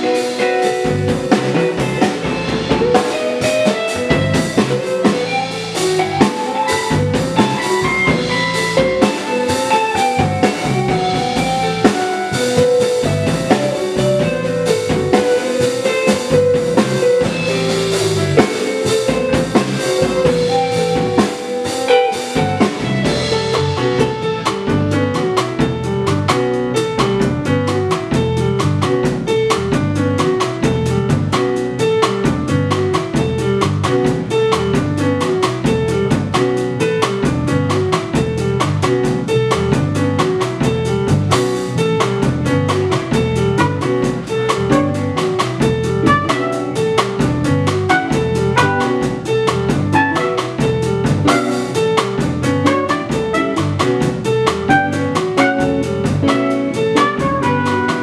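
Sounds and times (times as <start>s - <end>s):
electric guitar solo: 0.0s - 24.4s, 46.0s - 47.0s, 47.9s - 49.3s, 49.9s - 51.8s
drum kit: 0.0s - 58.0s
electric bass guitar: 0.0s - 58.0s
piano: 0.0s - 58.0s.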